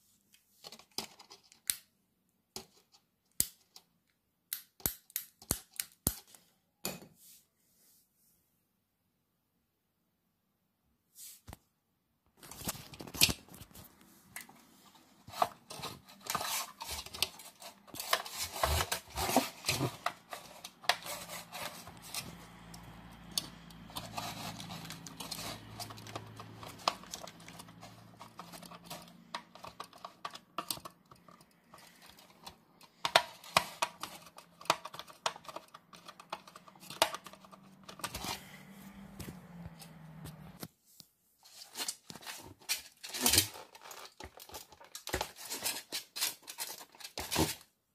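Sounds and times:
plastic sheet and paper rustling: 12.4s - 30.9s, 40.4s - 47.7s.

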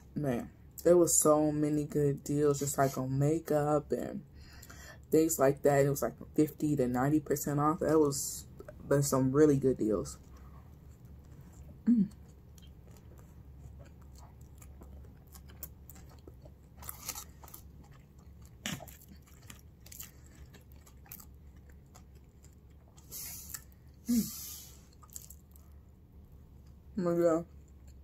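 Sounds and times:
person chewing food: 10.2s - 26.9s.

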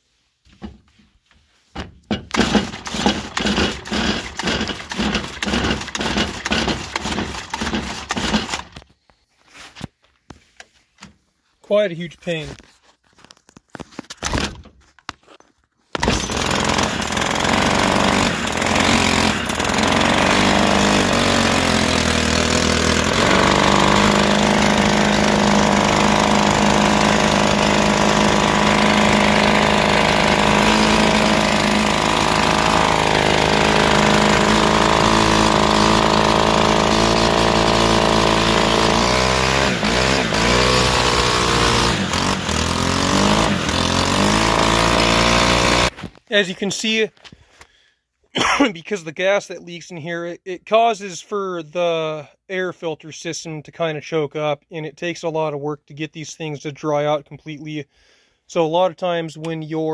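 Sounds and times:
string trimmer engine running rough: 2.1s - 8.8s, 16.0s - 46.0s.

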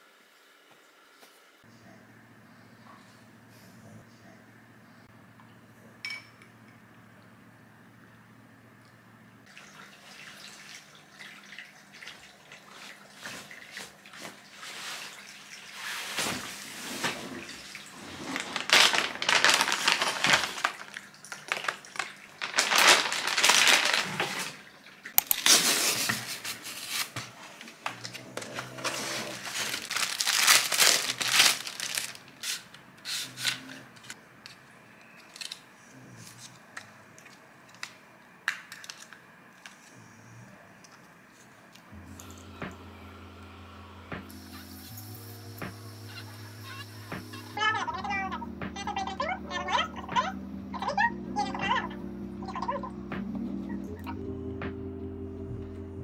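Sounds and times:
plastic bag crinkling: 18.0s - 32.8s.

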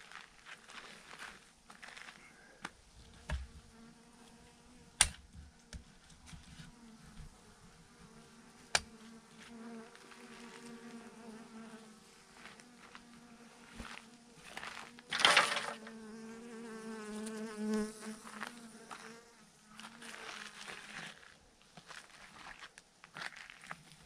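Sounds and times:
bee swarm buzzing: 6.7s - 20.0s.

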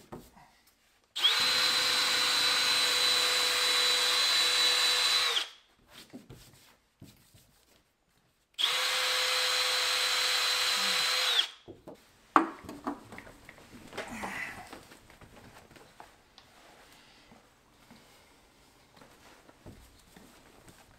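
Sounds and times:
cordless drill spinning eraser wheel: 1.2s - 5.6s, 8.6s - 11.6s.

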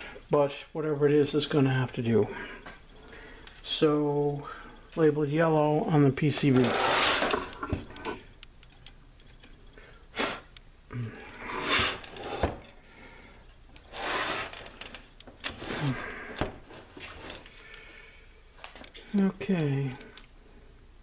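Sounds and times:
hands rustling wires: 11.5s - 17.9s.

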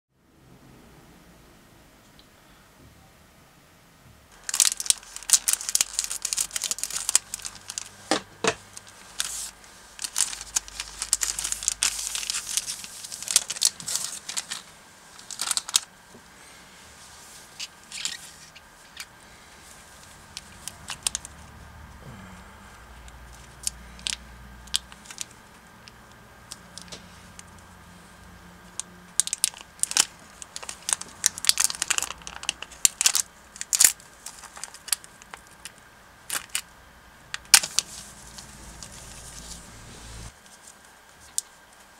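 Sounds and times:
plastic crinkling: 4.3s - 15.9s, 17.0s - 21.6s, 23.0s - 27.7s, 28.6s - 36.7s, 37.3s - 41.9s.

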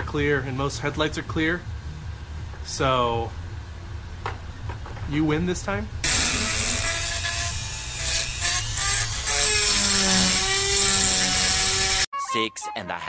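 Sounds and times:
rotary tool grinding steel: 6.0s - 12.1s.

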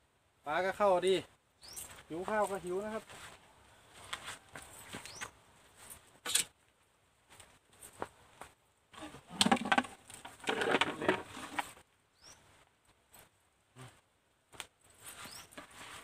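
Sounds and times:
footsteps crunching on sandy dirt: 1.8s - 6.0s.

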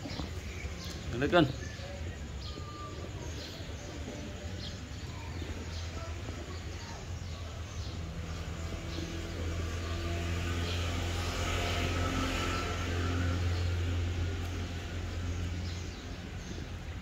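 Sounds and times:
small birds chirping: 0.0s - 17.0s
vehicle engine: 0.0s - 17.0s.

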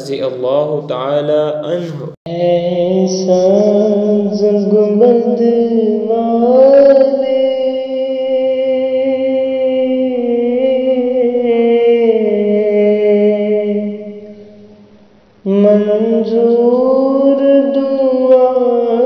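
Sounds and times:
person singing: 1.2s - 14.2s, 15.4s - 19.0s.

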